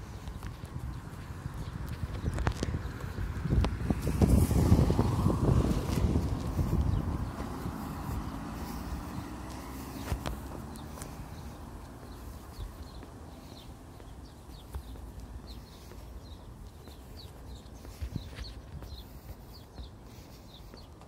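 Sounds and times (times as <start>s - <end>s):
faint footsteps: 0.0s - 21.0s
bird chirping: 6.4s - 21.0s.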